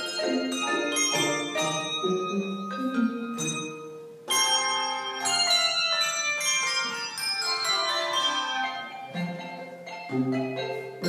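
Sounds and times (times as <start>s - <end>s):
handbell choir playing chords: 0.0s - 11.0s.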